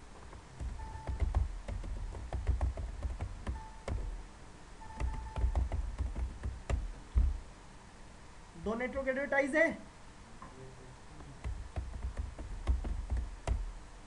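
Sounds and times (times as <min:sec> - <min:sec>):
typing on computer keyboard: 0:00.6 - 0:04.1, 0:04.9 - 0:06.9, 0:11.4 - 0:13.6.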